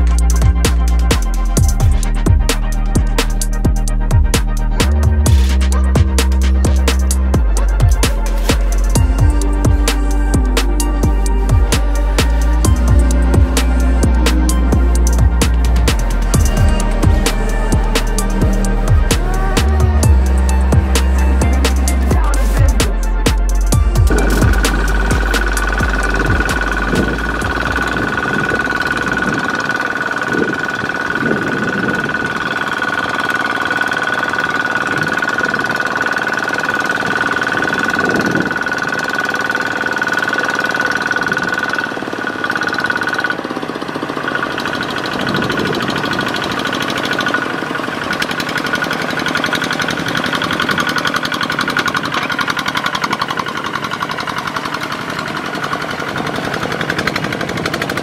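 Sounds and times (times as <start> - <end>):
diesel engine running under load: 0.0 - 58.0
steady high whine: 0.0 - 58.0.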